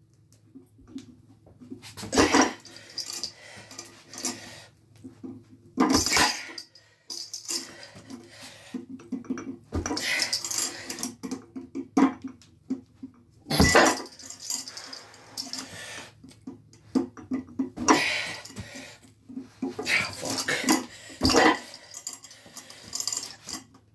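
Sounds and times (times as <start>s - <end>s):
chains jangling and plates clanking: 2.0s - 4.6s, 5.8s - 8.3s, 9.2s - 11.4s, 13.5s - 15.8s, 17.8s - 18.9s, 19.8s - 23.8s
person grunting and breathing: 17.8s - 18.9s, 19.8s - 22.0s.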